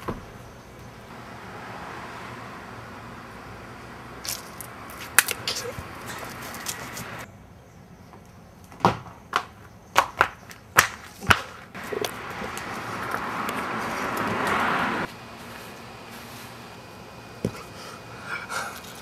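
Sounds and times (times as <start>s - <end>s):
rushing noise: 1.1s - 5.2s, 11.8s - 17.2s
footsteps on hard pavement: 8.8s - 16.6s.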